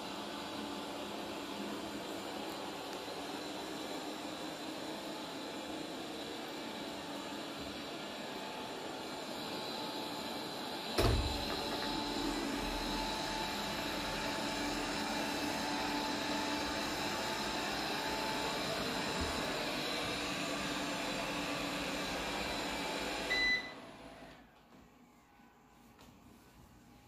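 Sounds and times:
short beep: 0:23.3 - 0:23.7.

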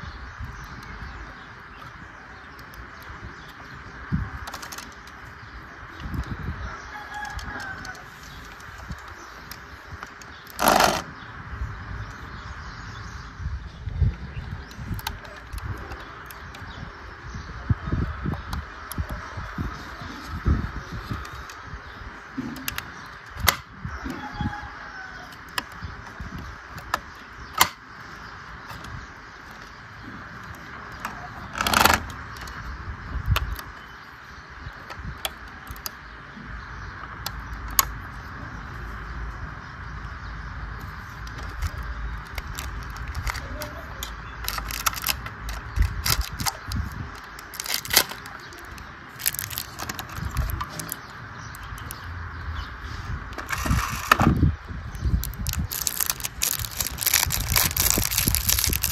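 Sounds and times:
sharp clicks on model car: 0:22.6 - 0:23.7, 0:27.6 - 0:27.8
plastic bag crinkling: 0:42.2 - 0:43.5, 0:44.4 - 0:51.0, 0:55.2 - 0:58.9.

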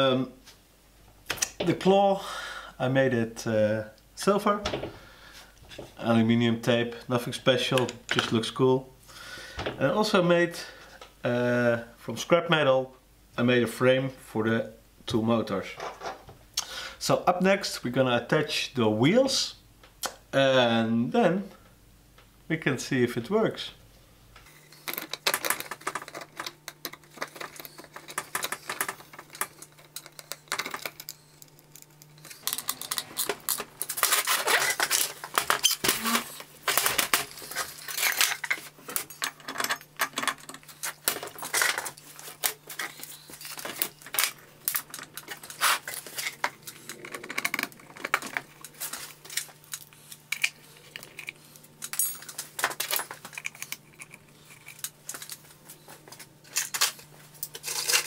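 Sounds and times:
faint steady hum: 0:00.0 - 0:58.0
metal parts and tools clattering: 0:24.7 - 0:55.4, 0:56.4 - 0:58.0.

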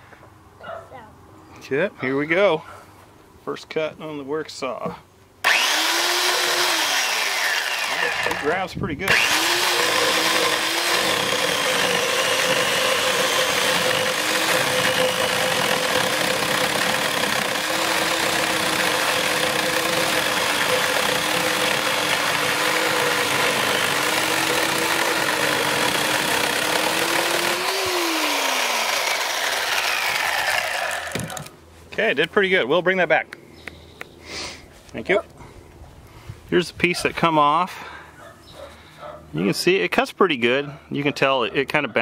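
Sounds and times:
electric chainsaw motor whine: 0:05.4 - 0:31.5.

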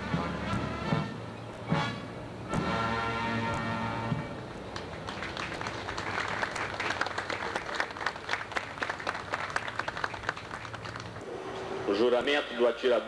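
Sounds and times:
crowd applauding: 0:04.7 - 0:11.3.

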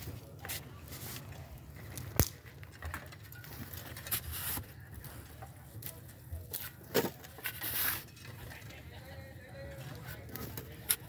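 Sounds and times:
light taps and scrapes: 0:00.4 - 0:08.7.

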